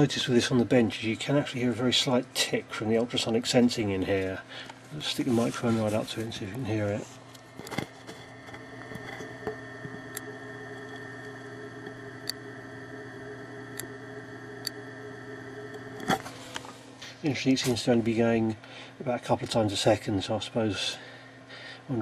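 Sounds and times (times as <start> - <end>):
steady background hum: 0.0 - 22.0
gas meter ticking: 8.4 - 16.2.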